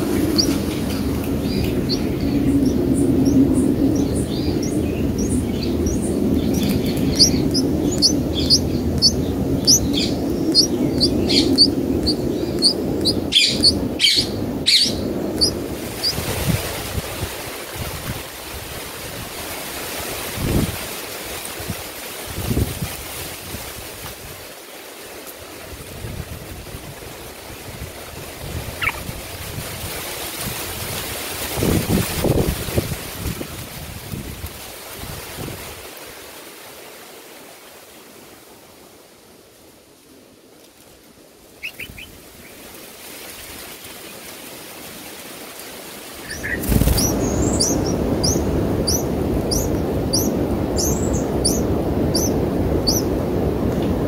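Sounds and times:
bird chirp: 0.2s - 16.2s, 28.8s - 29.1s, 41.6s - 42.1s, 46.2s - 53.1s
nestlings cheeping: 5.2s - 16.3s.

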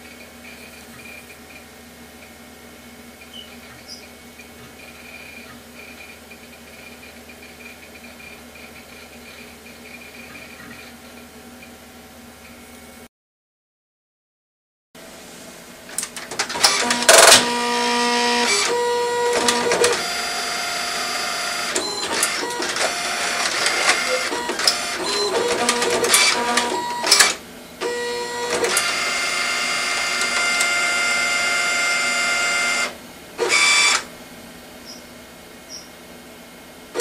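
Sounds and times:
printer clicks: 15.9s - 20.2s, 21.0s - 31.3s
inkjet printer motors whining: 16.0s - 34.1s.

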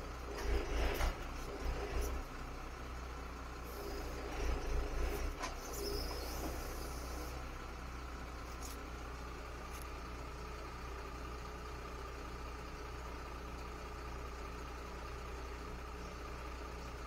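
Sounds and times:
faint whines: 0.0s - 10.2s
diesel truck engine humming: 0.0s - 17.0s
hydraulic hiss: 3.7s - 7.4s.

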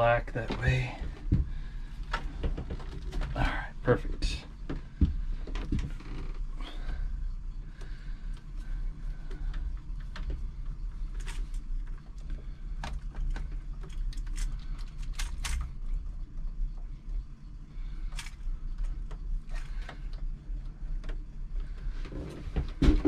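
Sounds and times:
low hum: 0.0s - 23.0s
cables and connector rattling: 7.8s - 16.0s.

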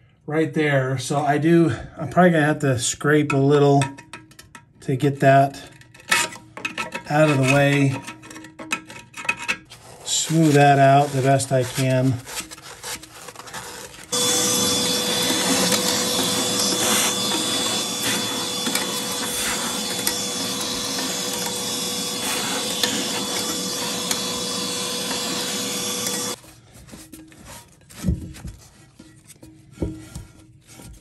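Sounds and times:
faint scraping: 9.7s - 28.0s
electric tool motor whining: 13.6s - 26.4s.

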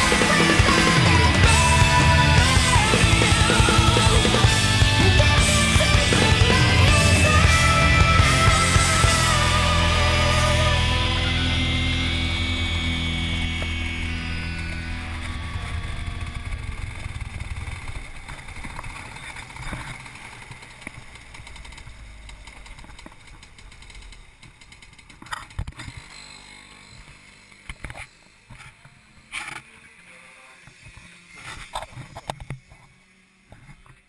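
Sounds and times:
kart engine running: 0.0s - 34.0s.

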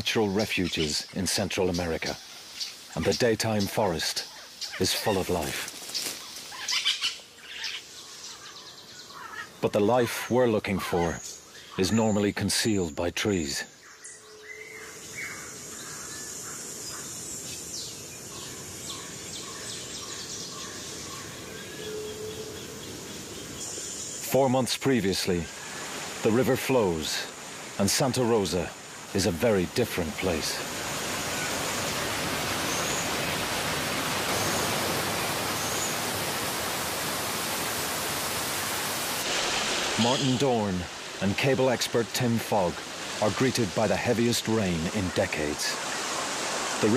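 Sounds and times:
rushing water hiss: 0.0s - 46.9s
birds chirping and whistling: 13.7s - 24.3s, 31.1s - 33.4s, 34.1s - 36.1s.

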